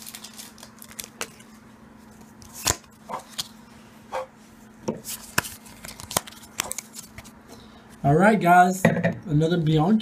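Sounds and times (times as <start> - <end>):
foil pack crinkling: 0.0 - 3.6, 5.1 - 7.4.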